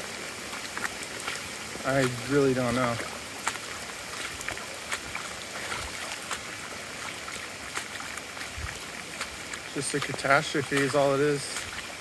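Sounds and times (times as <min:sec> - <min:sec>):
water running over ground: 0:00.0 - 0:12.0.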